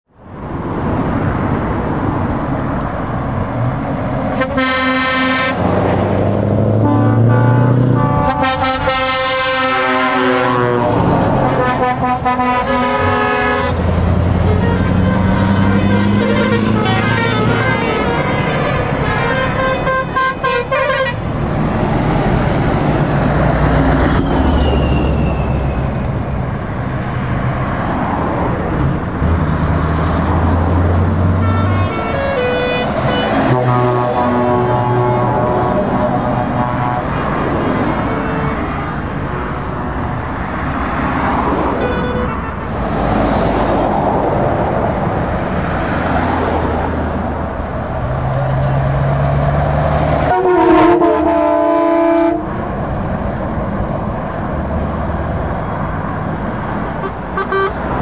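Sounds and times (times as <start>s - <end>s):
passing traffic: 0.0s - 58.0s
diesel truck engines: 0.1s - 58.0s
truck air horn blasts: 4.4s - 5.7s, 6.8s - 13.8s, 14.4s - 21.2s, 31.3s - 39.0s, 41.8s - 42.7s, 50.2s - 52.5s, 57.0s - 57.8s.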